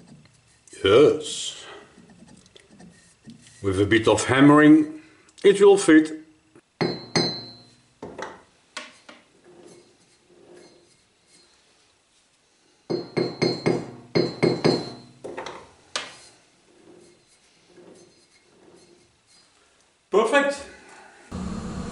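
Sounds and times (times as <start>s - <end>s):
hammer striking steel tube: 6.8s - 7.7s, 12.9s - 15.1s.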